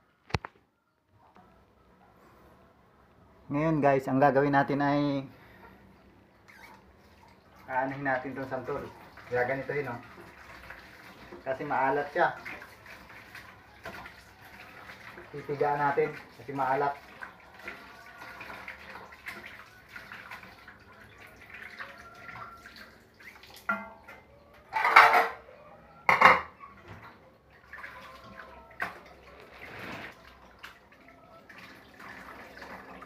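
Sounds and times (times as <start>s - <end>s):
kitchenware clattering knocks: 24.7s - 25.4s, 26.0s - 26.6s.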